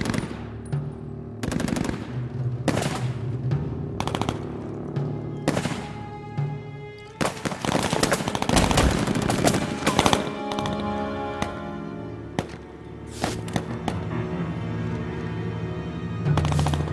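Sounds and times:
background music with held tones: 0:00.0 - 0:16.9
machine-gun fire: 0:01.4 - 0:03.3, 0:04.0 - 0:04.6, 0:07.2 - 0:10.2.

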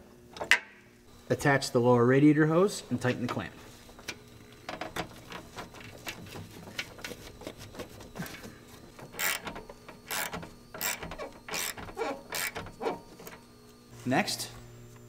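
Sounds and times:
hand ratchet clicking: 0:09.2 - 0:09.5, 0:10.1 - 0:12.6.

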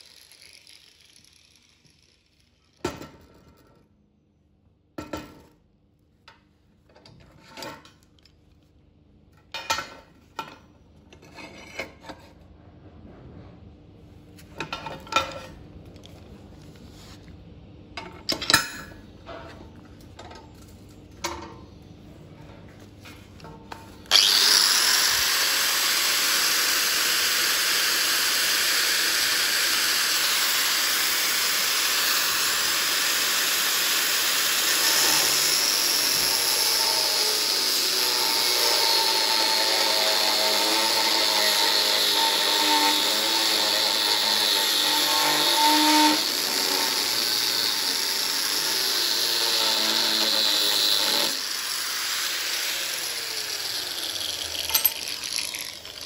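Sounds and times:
angle grinder on steel: 0:00.0 - 0:02.8, 0:24.0 - 0:56.0.

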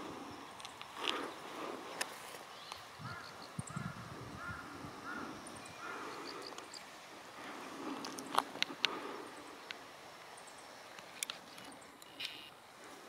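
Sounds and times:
birds calling: 0:00.0 - 0:13.0.

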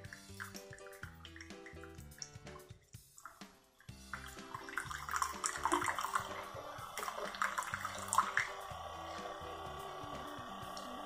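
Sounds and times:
background music: 0:00.0 - 0:11.0
coffee pouring into a mug: 0:03.2 - 0:11.0.

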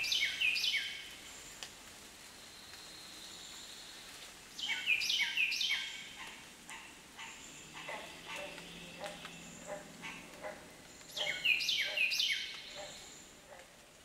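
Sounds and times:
soft steady hiss: 0:00.0 - 0:14.0
birds calling: 0:04.6 - 0:13.7.

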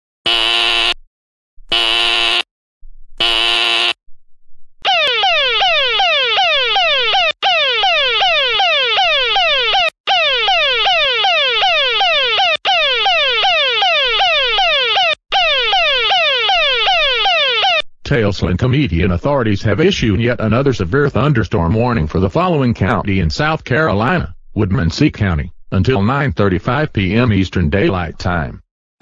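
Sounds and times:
short harsh buzzes: 0:00.2 - 0:01.0, 0:01.7 - 0:02.5, 0:03.2 - 0:04.0
downward sweeping alarm tone: 0:04.8 - 0:17.8.

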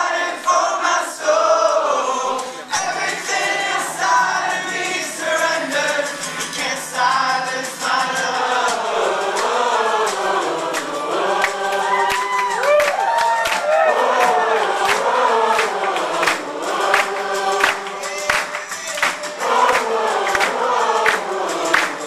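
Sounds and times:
men singing together: 0:00.0 - 0:22.0
acoustic guitar: 0:02.3 - 0:12.6.

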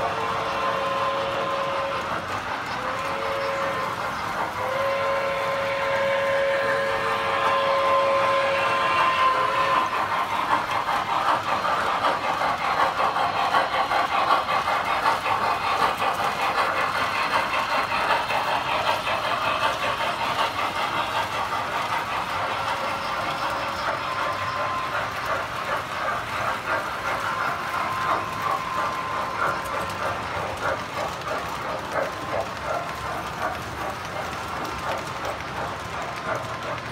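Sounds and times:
toy train whistle: 0:00.0 - 0:02.2, 0:02.8 - 0:10.1
toy train wheels clattering: 0:00.0 - 0:36.9.

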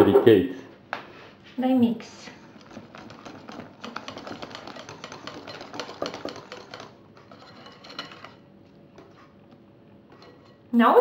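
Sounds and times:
whisk clicking against glass bowl: 0:02.6 - 0:08.4.

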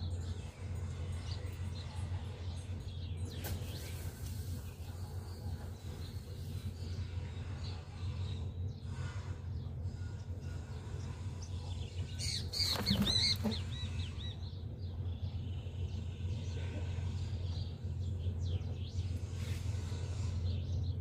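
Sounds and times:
birds chirping: 0:00.0 - 0:21.0
steady low rumble: 0:13.4 - 0:21.0.

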